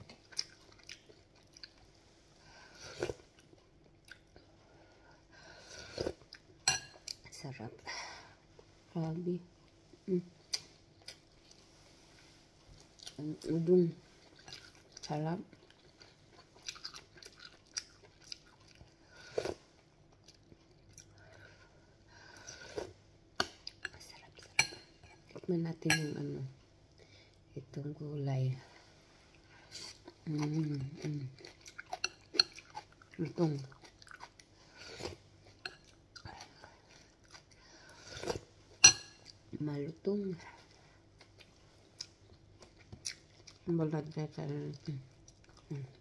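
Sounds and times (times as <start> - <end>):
soft chewing: 0.0 - 27.8, 28.4 - 46.0
chewing: 0.1 - 1.9, 14.2 - 21.8, 29.3 - 38.5, 40.5 - 43.7.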